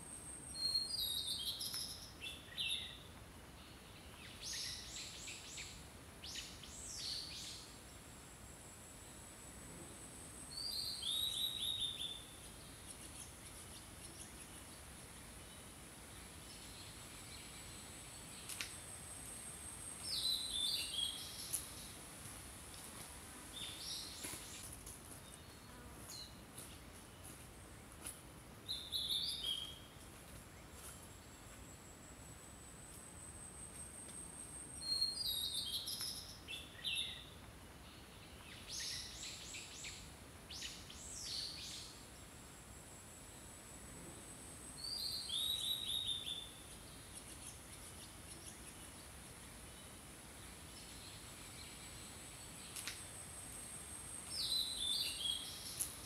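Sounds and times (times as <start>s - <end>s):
faint hiss: 0.0s - 56.0s
songbirds singing: 0.4s - 7.7s, 10.5s - 18.8s, 34.7s - 42.2s, 44.7s - 53.2s, 54.1s - 56.0s.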